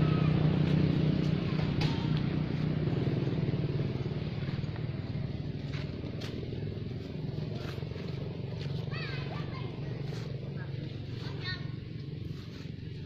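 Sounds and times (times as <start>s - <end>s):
engine humming: 0.0s - 13.0s.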